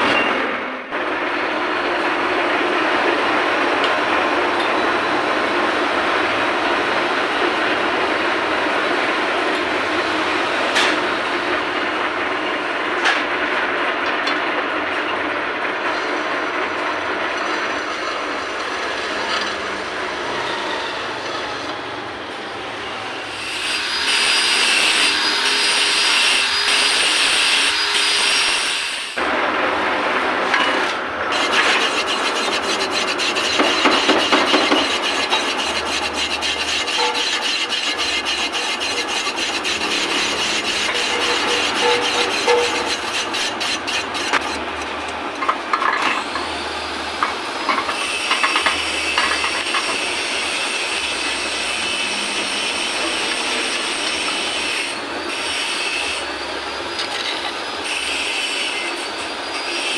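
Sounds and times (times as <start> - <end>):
metal lathe running: 0.0 - 59.9
high ringing cutting whine: 22.8 - 28.8, 33.3 - 43.2
rough rasping scraping: 31.3 - 45.4.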